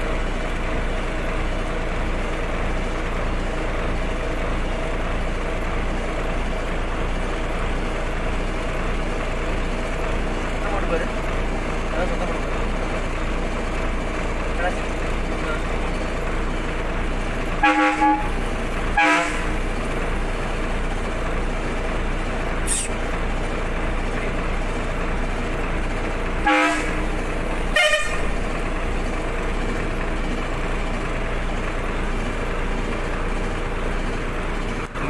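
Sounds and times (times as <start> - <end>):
vehicle engine running: 0.0 - 35.0
short horn toots: 17.6 - 19.6, 26.4 - 27.1, 27.7 - 28.4.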